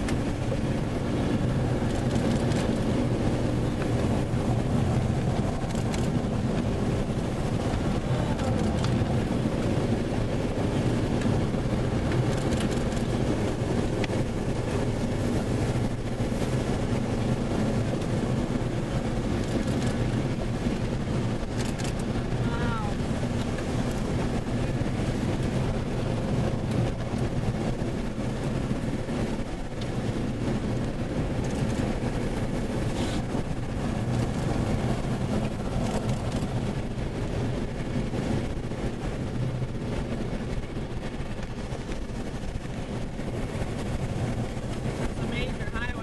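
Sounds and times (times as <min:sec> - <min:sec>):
road and engine rumble in cabin: 0:00.0 - 0:46.0.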